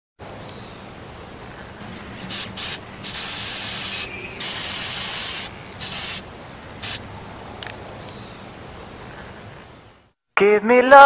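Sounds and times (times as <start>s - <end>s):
aerosol spray can hissing: 2.2s - 6.2s.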